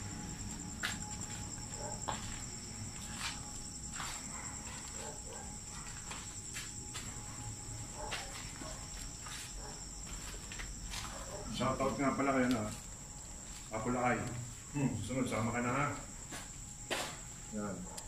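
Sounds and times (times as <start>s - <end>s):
crickets chirping: 0.0s - 18.0s
footsteps on concrete: 0.8s - 5.2s, 5.9s - 7.2s, 8.0s - 12.8s, 16.2s - 17.2s.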